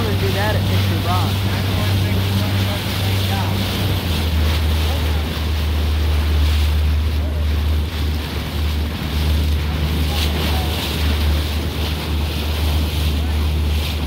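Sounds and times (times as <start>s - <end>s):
motorboat engine droning: 0.0s - 14.0s
water rushing past: 0.0s - 14.0s.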